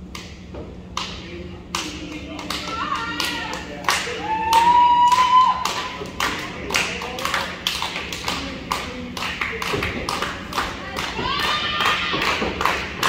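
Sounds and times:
crowd clapping in rhythm: 0:00.0 - 0:13.0
long rising shout: 0:04.2 - 0:05.7.

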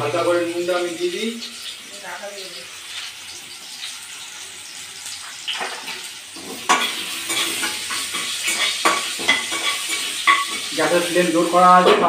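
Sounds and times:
potatoes sizzling in oil: 0:00.0 - 0:12.0
metal spatula scraping pan: 0:05.5 - 0:10.7.

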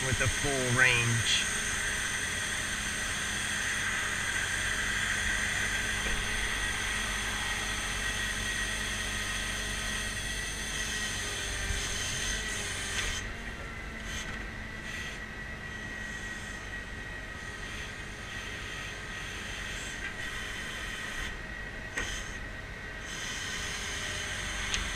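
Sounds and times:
low engine hum: 0:00.0 - 0:19.2
hydraulic whine: 0:00.0 - 0:24.9.

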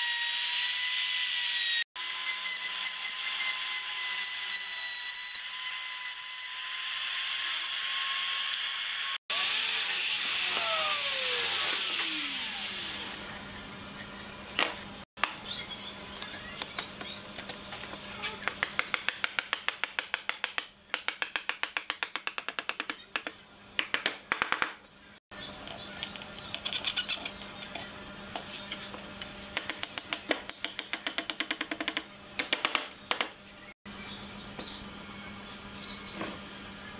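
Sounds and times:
router cutting wood: 0:00.0 - 0:13.5
motor winding down: 0:08.5 - 0:13.5.

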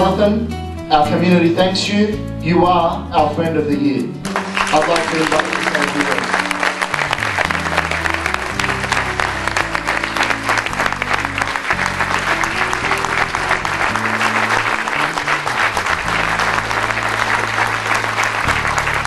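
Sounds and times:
background music with bass notes: 0:00.0 - 0:19.0
audience applauding: 0:04.3 - 0:19.0.

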